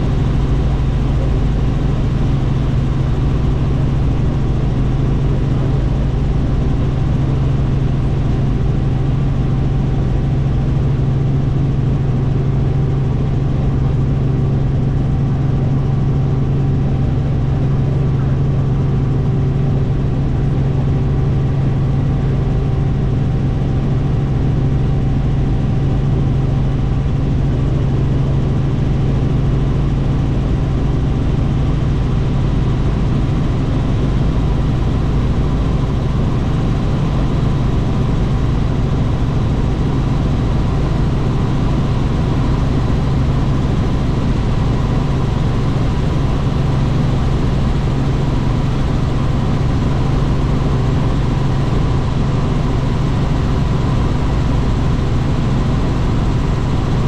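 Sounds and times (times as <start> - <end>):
helicopter engine and rotor noise: 0.0 - 57.0.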